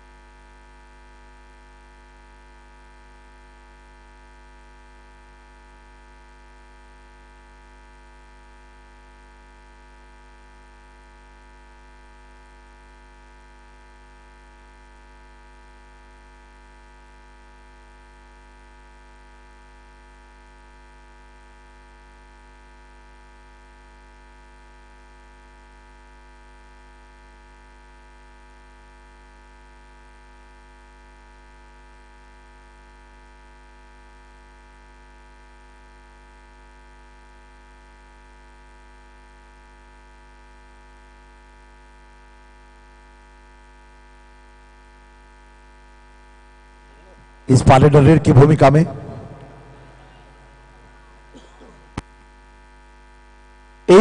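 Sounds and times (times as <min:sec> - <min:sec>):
low electrical hum: 0:45.3 - 0:54.0.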